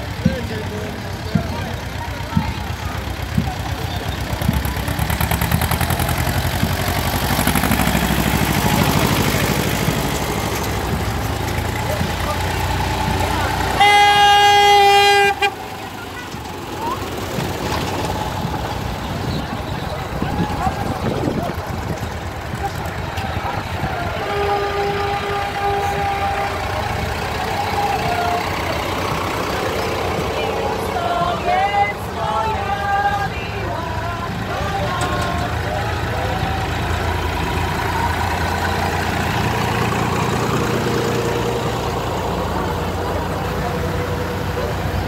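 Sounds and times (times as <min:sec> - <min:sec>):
tractor diesel engine running: 0:00.0 - 0:45.0.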